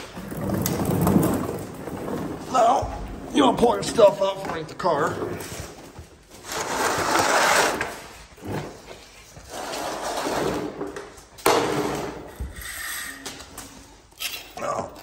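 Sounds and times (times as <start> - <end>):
plastic pan scraping on concrete: 0.0 - 2.6, 6.4 - 11.0.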